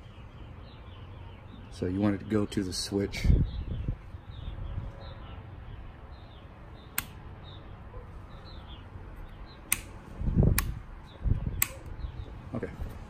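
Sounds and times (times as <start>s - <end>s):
small birds chirping: 0.0s - 13.0s
sharp clicks at handlebar: 6.9s - 7.2s, 9.7s - 10.8s, 11.5s - 11.9s.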